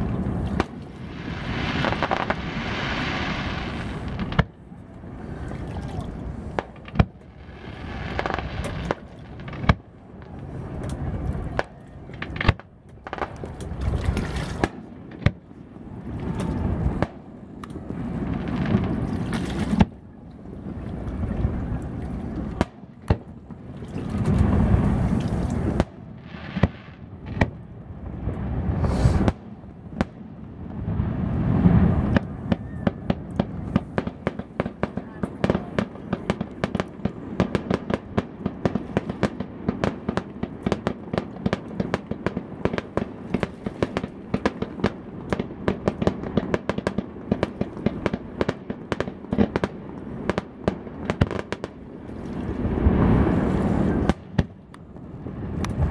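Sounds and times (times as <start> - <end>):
fireworks bangs: 0.2 - 4.6, 6.4 - 13.5, 22.5 - 51.9, 52.6 - 55.9.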